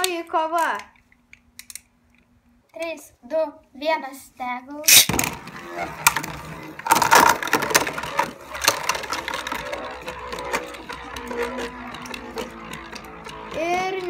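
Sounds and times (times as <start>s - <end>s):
spinning top rattling: 4.9s - 14.0s
spinning tops clashing: 4.9s - 14.0s.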